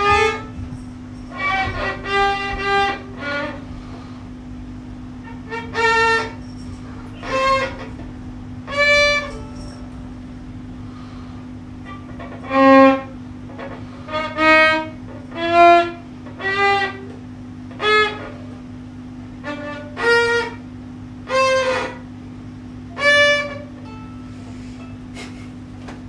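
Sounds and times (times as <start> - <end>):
solo violin bowed notes: 0.0 - 4.1, 5.2 - 6.4, 7.1 - 9.6, 19.4 - 20.6, 21.2 - 22.0, 22.9 - 24.0.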